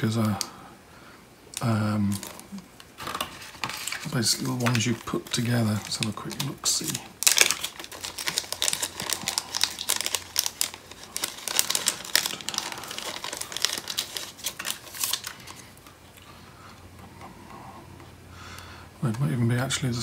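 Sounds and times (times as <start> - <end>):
plastic bag crinkling: 1.6 - 16.2.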